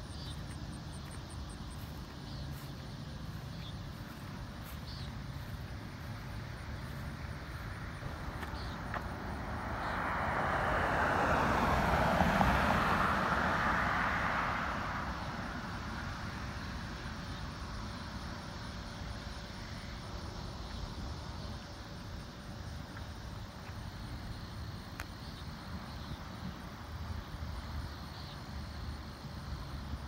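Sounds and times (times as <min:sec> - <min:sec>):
outdoor background noise: 0:00.0 - 0:30.0
vehicle passing by: 0:01.8 - 0:17.0.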